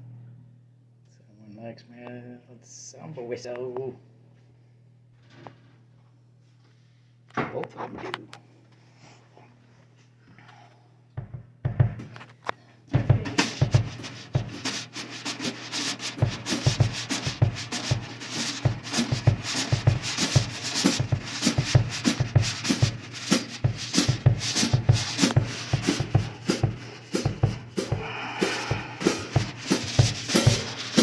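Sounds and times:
low drum thumps: 11.2s - 12.1s, 12.9s - 15.0s, 15.6s - 31.0s
brush swishes and taps on snare: 13.2s - 28.0s, 29.1s - 31.0s.

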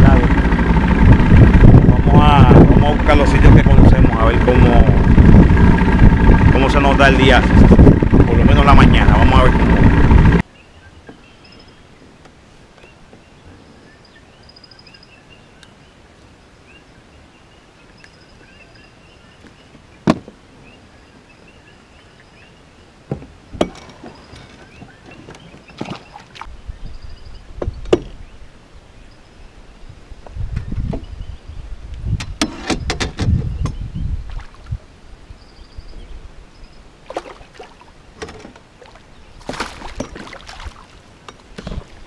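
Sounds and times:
low rumble: 0.0s - 10.4s
faint bird chirps: 24.1s - 29.9s.

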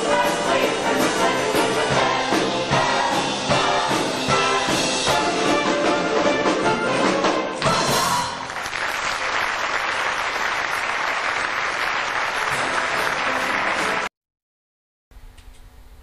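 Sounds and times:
stage musical music: 0.0s - 14.1s
audience applauding: 8.3s - 14.1s.

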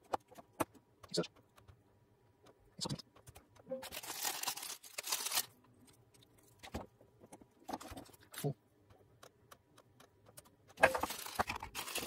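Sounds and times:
rustling crinkling scrape: 3.8s - 6.6s, 10.9s - 12.0s.

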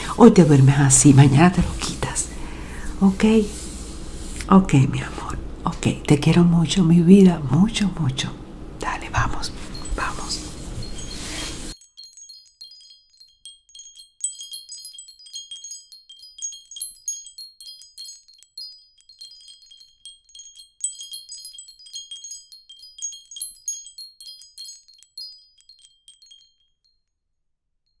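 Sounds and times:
wind chimes tinkling: 0.0s - 3.4s, 8.9s - 27.1s.

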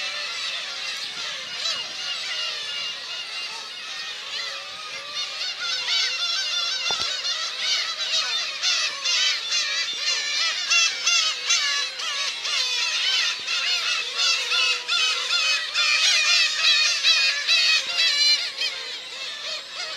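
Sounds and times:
gulls calling: 0.0s - 19.9s.

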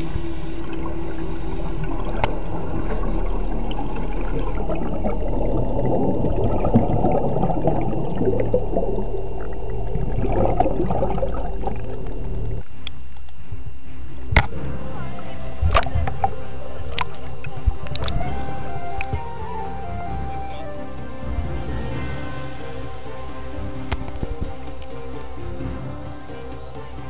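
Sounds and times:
underwater rumble and gurgling: 0.0s - 20.3s
low steady hum: 0.0s - 27.0s.

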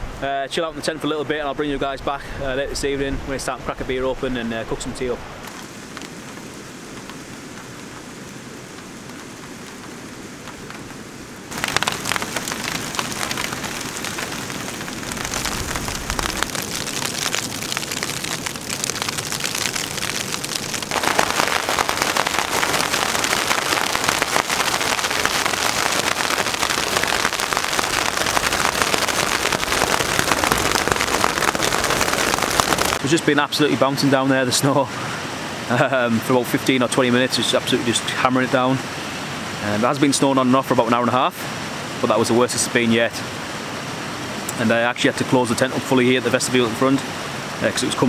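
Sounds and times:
snow pellets pattering on tent: 11.5s - 33.0s.

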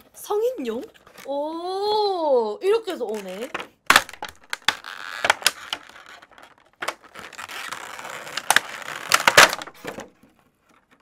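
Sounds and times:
plastic bag crinkling: 2.9s - 10.3s.

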